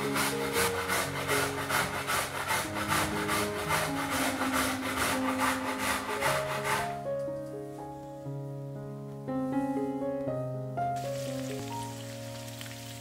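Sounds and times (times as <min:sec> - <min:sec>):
food rasping on grater: 0:00.0 - 0:06.8.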